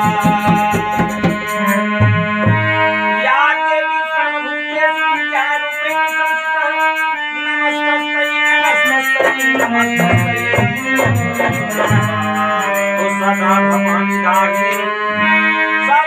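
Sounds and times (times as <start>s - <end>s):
hand drum strokes: 0.0s - 2.8s, 8.6s - 13.8s
harmonium melody: 0.0s - 16.0s.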